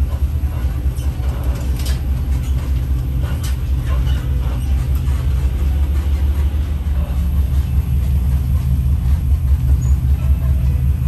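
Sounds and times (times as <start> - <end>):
truck engine droning: 0.0 - 11.0.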